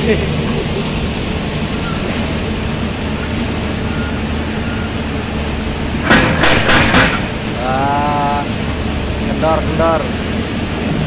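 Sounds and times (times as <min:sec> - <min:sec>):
diesel excavator engine running: 0:00.0 - 0:11.0
loud knocks: 0:06.0 - 0:07.4.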